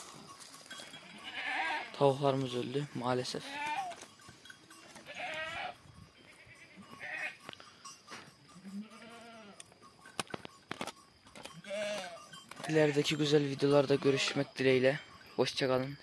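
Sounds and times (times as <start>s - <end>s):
goats bleating: 0.7s - 2.0s, 3.3s - 4.1s, 4.8s - 7.4s, 8.6s - 9.6s, 11.6s - 14.5s.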